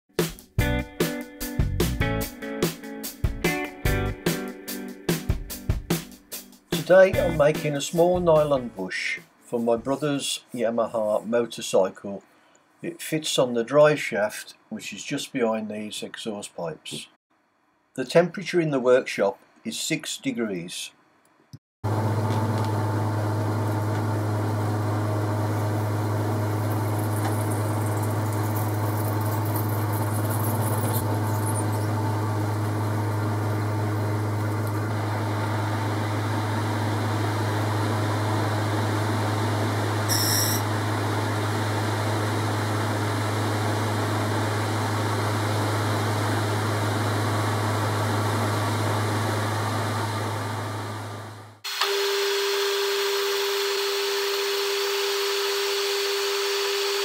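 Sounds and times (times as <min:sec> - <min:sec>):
drill boring into nylon: 0:40.0 - 0:40.7, 0:51.6 - 0:57.0
metal lathe humming: 0:51.7 - 0:57.0.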